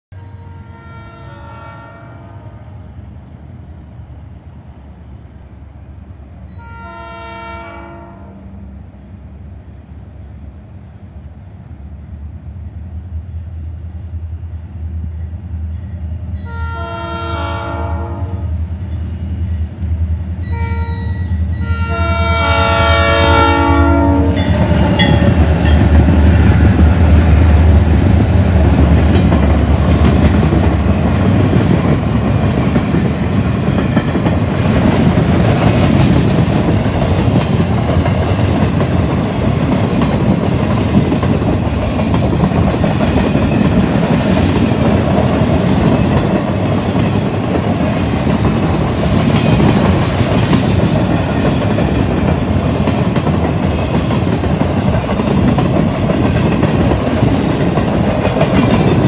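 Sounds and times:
locomotive horn blasts: 0:00.1 - 0:02.6, 0:06.5 - 0:08.5, 0:16.4 - 0:18.6, 0:20.4 - 0:25.4
wheels on rail: 0:00.1 - 0:59.0.

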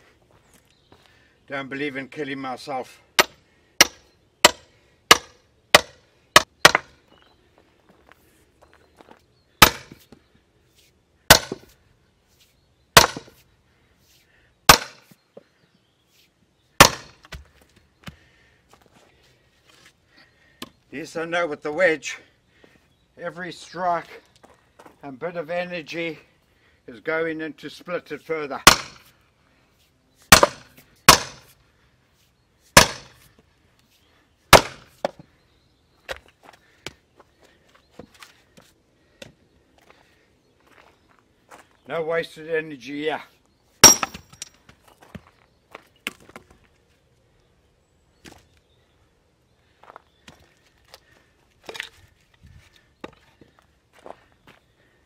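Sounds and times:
hammer striking steel wedge: 0:03.2 - 0:06.9, 0:09.6 - 0:10.0, 0:11.3 - 0:11.6, 0:13.0 - 0:13.3, 0:14.7 - 0:15.0, 0:16.8 - 0:17.2, 0:28.7 - 0:29.1, 0:30.3 - 0:31.4, 0:32.8 - 0:33.1, 0:34.6 - 0:34.9, 0:43.8 - 0:44.5.

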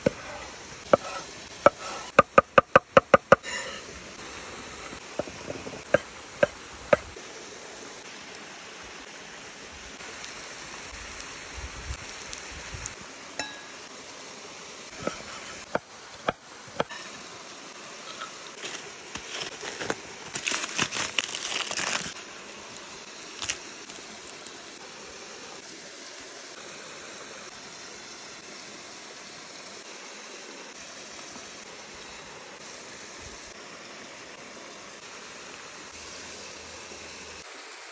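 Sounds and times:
waterfall and stream rushing: 0:00.0 - 0:37.9
crackly crinkly burst: 0:18.6 - 0:24.6.

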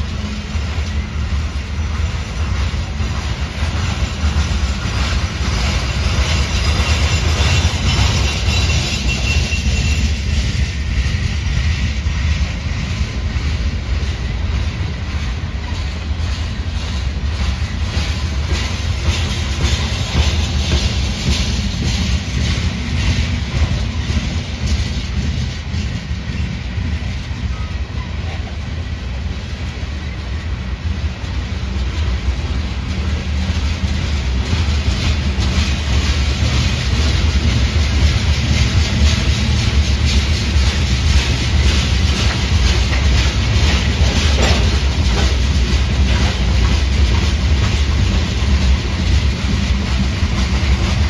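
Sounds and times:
train wheels rumbling on rail: 0:00.0 - 0:51.0
wheels clicking over rail joints: 0:00.1 - 0:11.6, 0:29.5 - 0:51.0.

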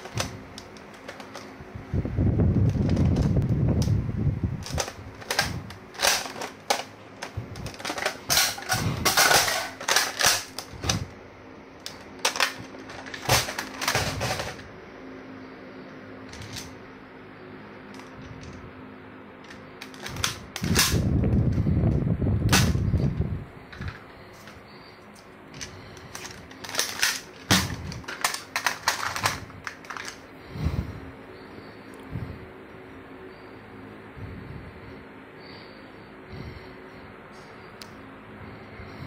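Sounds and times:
plastic clicks and clacks: 0:00.0 - 0:01.5, 0:04.6 - 0:11.0, 0:19.5 - 0:21.0, 0:25.6 - 0:30.2.

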